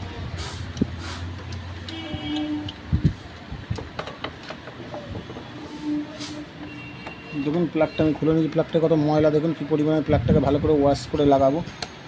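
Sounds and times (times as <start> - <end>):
metal tool clicks and scrapes: 11.7 - 12.0.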